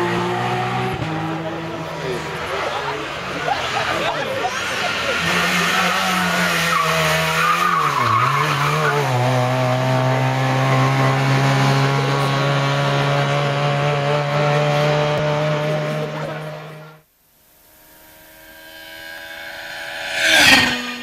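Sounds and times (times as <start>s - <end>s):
rally car engine revving high: 0.0s - 21.0s
tyre squeal: 4.4s - 9.0s.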